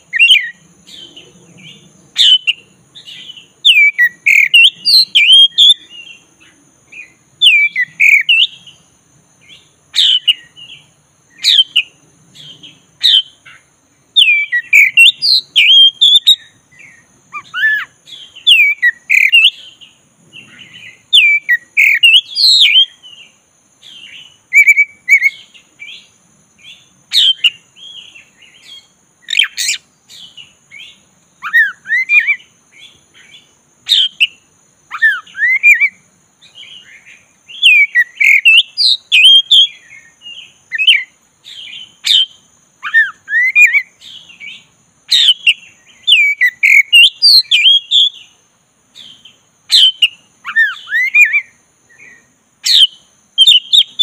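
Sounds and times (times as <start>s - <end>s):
bird singing whistled phrases: 0.0s - 6.2s, 7.0s - 8.8s, 10.0s - 10.8s, 14.2s - 19.8s, 20.4s - 23.3s, 23.9s - 25.5s, 31.4s - 32.5s, 33.9s - 36.9s, 37.5s - 44.4s, 45.1s - 48.3s, 49.0s - 54.0s.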